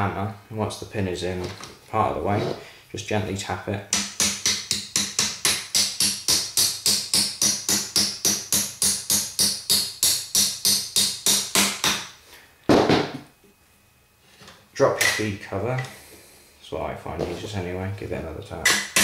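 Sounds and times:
hammer tapping on metal: 3.9s - 12.0s.

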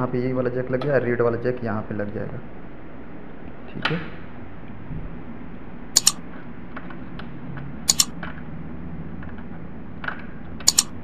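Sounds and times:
double mouse clicks: 6.0s - 6.2s, 7.9s - 8.2s, 10.6s - 11.0s.

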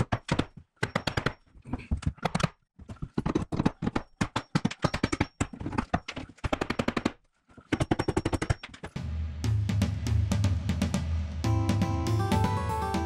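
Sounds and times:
music with drum beat: 9.0s - 13.0s.

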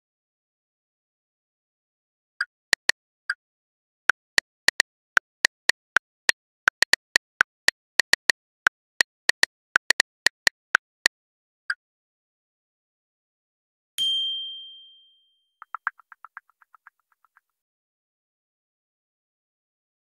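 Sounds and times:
phone keyboard clicks: 6.7s - 7.2s, 9.3s - 11.1s.

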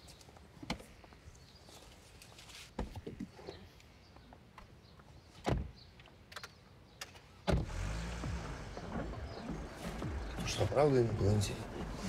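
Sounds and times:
car engine humming: 7.5s - 12.0s.

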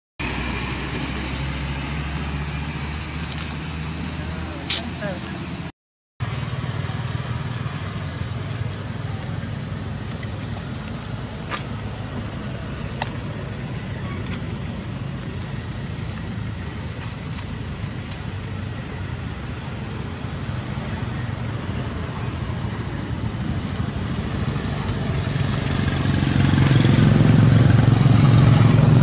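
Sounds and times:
low engine drone: 0.2s - 29.0s
outdoor background noise: 0.2s - 29.0s.

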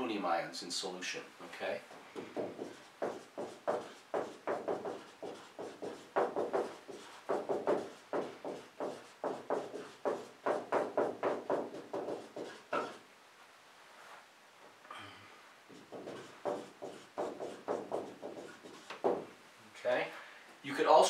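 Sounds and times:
marker squeaking on whiteboard: 2.2s - 13.0s, 15.7s - 19.3s.

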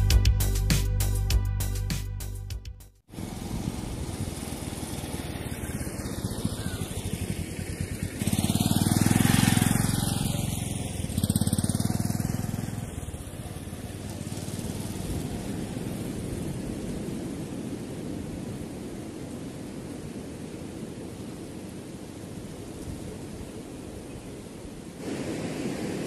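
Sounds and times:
motorcycle passing: 3.1s - 18.7s.

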